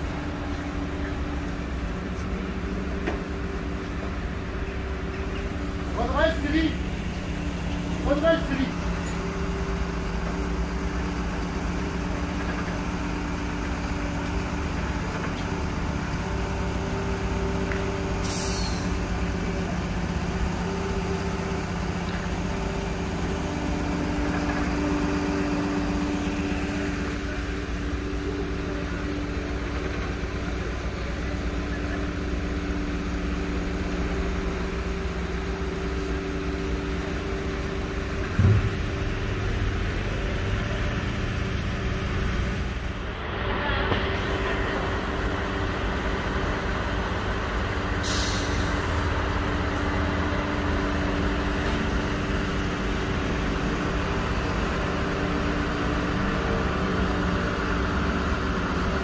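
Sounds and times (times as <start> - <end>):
truck diesel engines droning: 0.0 - 59.0
air hiss: 18.2 - 19.0, 48.0 - 49.0
loud thump: 38.3 - 39.0.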